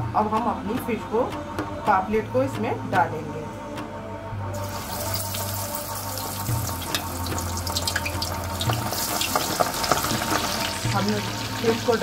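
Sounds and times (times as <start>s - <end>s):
fish sizzling in hot oil: 4.6s - 12.0s
oil crackling and popping: 4.7s - 12.0s.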